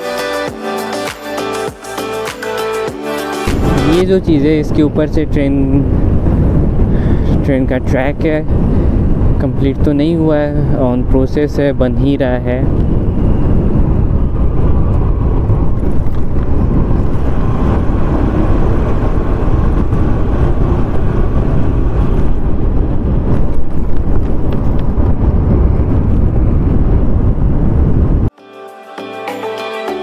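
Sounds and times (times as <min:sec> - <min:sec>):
wind on microphone: 0:03.4 - 0:28.3
scooter engine: 0:15.1 - 0:22.8.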